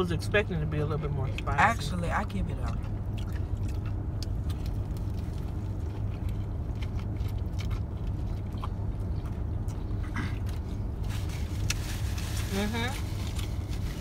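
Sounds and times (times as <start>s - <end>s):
low hum inside car: 0.0s - 14.0s
chewing: 2.7s - 10.8s.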